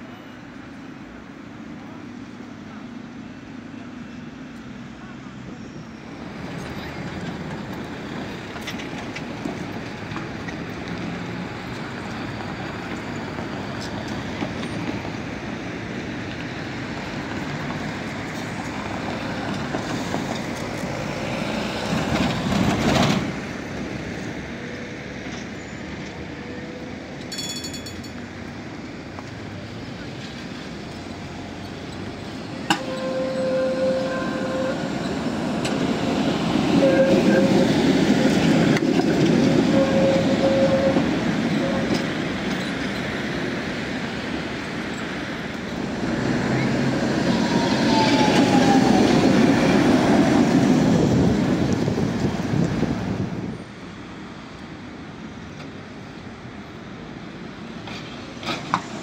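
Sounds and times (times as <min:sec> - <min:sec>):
tram running: 0:00.0 - 0:59.0
tram whine: 0:00.0 - 0:59.0
high ringing tone: 0:32.7 - 0:35.2.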